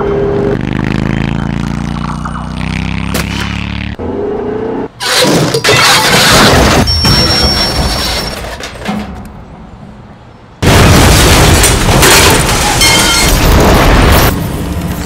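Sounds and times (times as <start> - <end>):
explosions rumbling: 10.6 - 14.4.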